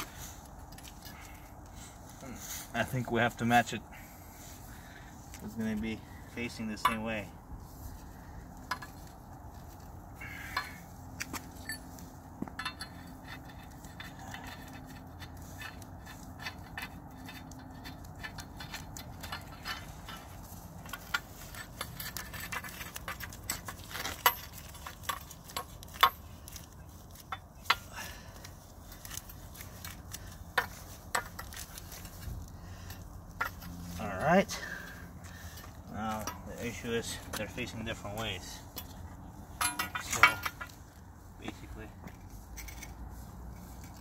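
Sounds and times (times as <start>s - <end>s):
metal pipe clicks and clinks: 6.7s - 7.2s, 8.6s - 9.1s, 10.4s - 32.2s, 32.8s - 33.8s, 38.2s - 40.8s.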